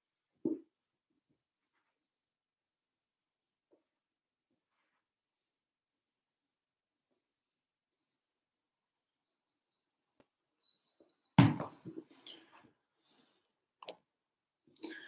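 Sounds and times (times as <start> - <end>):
faint high chirps: 8.6 - 11.4.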